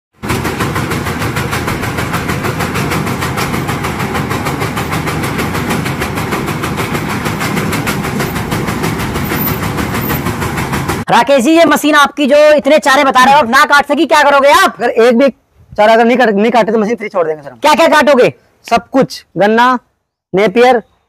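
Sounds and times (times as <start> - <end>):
chaff cutter chopping stalks: 0.2 - 11.0.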